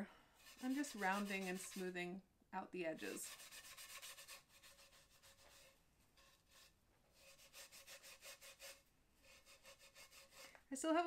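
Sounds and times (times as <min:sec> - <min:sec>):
sponge scrubbing plaster: 0:00.4 - 0:01.9, 0:03.0 - 0:10.5.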